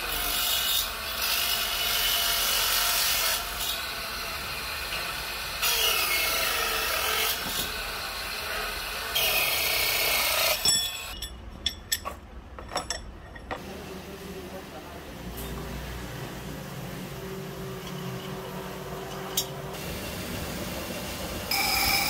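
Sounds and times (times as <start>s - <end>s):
brass grinding on wheel: 17.3s - 19.7s, 21.5s - 22.0s.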